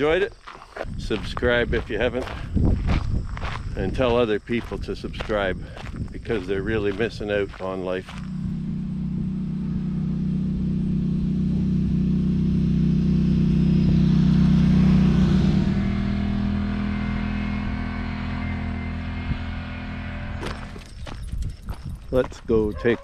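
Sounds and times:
vehicle engine passing by: 7.5 - 21.0.

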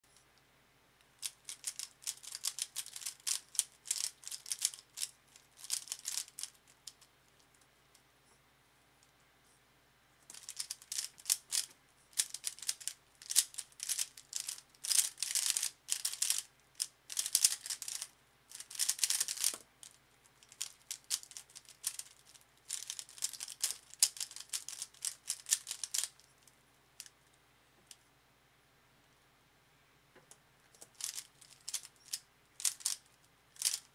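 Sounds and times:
plastic cube clicking and clacking: 1.2 - 7.1, 10.3 - 26.2, 30.8 - 33.9.

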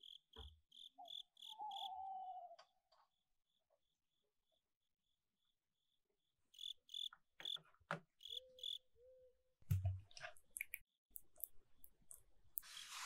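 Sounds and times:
crickets chirping: 0.0 - 2.1, 6.5 - 7.6.

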